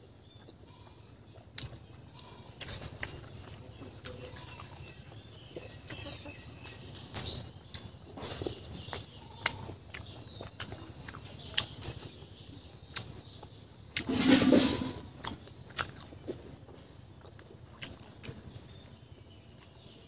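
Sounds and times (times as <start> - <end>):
mouth clicks and chewing: 0.2 - 14.1, 15.0 - 20.0
biting into food: 1.5 - 5.0, 7.0 - 12.2, 12.9 - 16.3, 17.2 - 19.0.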